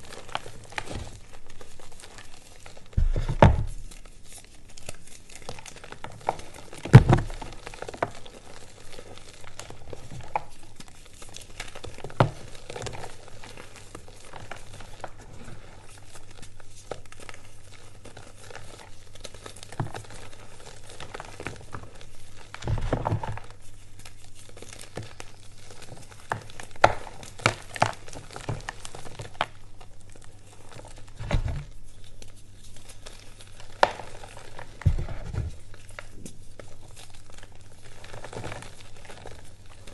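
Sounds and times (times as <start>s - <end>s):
heavy thuds: 3.0s - 3.7s, 31.2s - 31.8s, 34.9s - 35.6s.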